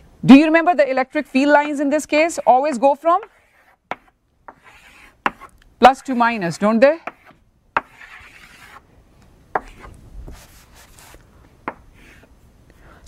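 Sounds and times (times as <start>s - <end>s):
chalk scraping on chalkboard: 2.3s - 8.8s, 9.6s - 11.2s
chalk tapping on board: 3.2s - 5.5s, 7.0s - 8.8s, 9.6s - 9.9s.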